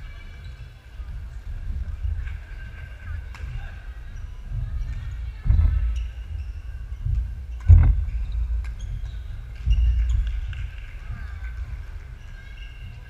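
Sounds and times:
shoe squeaks: 5.6 - 10.7, 12.1 - 13.0.

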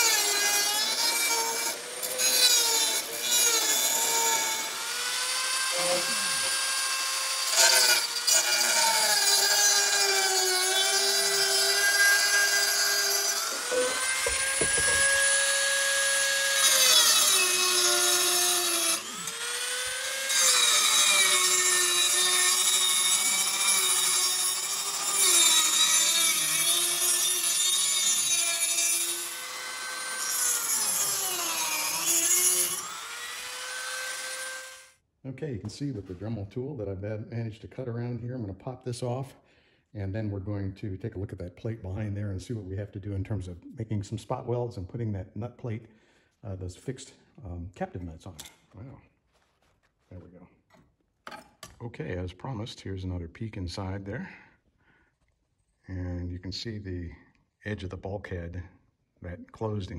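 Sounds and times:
rotary tool cutting metal: 0.0 - 34.9.

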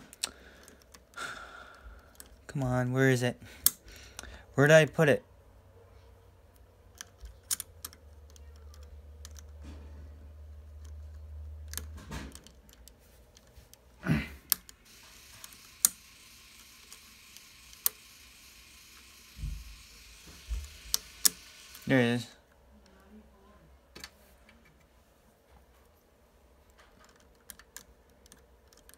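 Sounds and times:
plastic puzzle pieces clicking: 6.9 - 9.6, 26.7 - 28.9.

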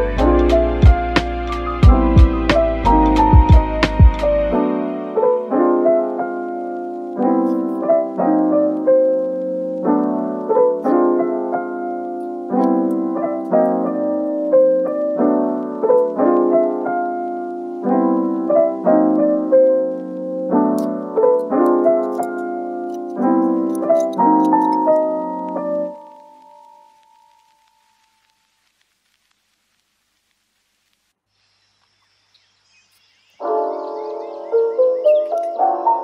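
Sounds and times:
piano music: 0.0 - 28.2, 33.4 - 36.0.

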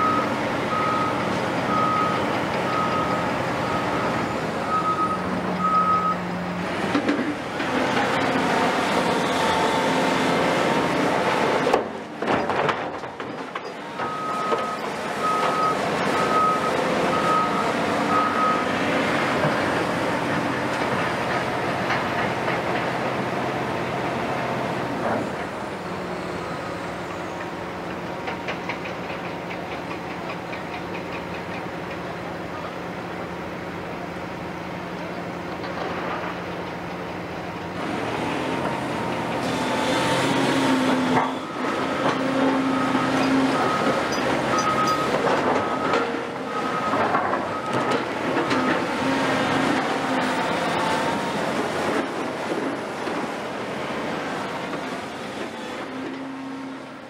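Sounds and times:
heavy diesel machinery engine hum: 0.0 - 57.0
reversing beeper: 14.0 - 18.8, 41.2 - 48.8.

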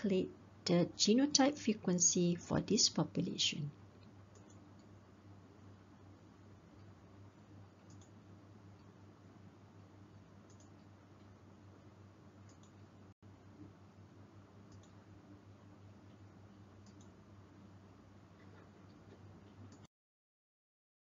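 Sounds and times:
faint electrical hum: 0.0 - 19.9
soft short clicks: 7.9 - 8.2, 10.5 - 10.9, 14.7 - 15.0.

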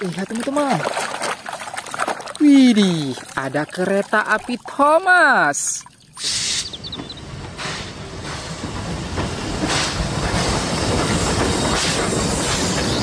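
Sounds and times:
steam locomotive chuffing: 6.2 - 13.0
hiss of steam: 7.5 - 13.0.

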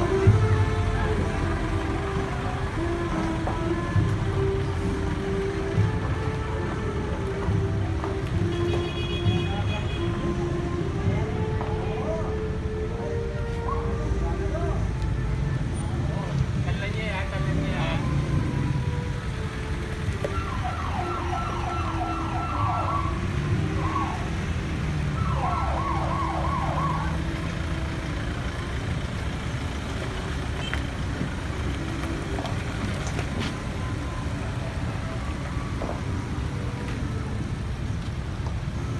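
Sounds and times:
vehicle engines rumbling: 0.0 - 38.9
siren yelping: 13.5 - 14.2, 20.2 - 24.4, 25.1 - 27.2.

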